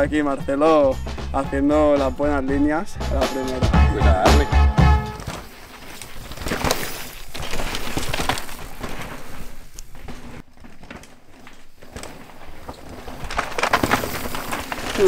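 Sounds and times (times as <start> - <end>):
bike knocks and rattles: 5.1 - 15.0
tyres crunching over sand and rock: 5.2 - 15.0.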